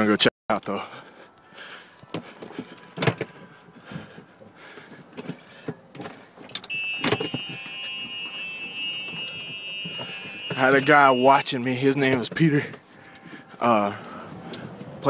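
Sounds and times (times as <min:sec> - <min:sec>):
steady high-pitched whine: 0:06.7 - 0:11.6.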